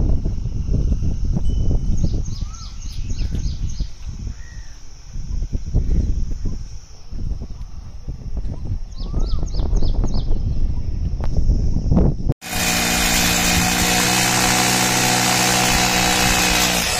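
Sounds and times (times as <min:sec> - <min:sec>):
small birds chirping: 0:01.8 - 0:11.1.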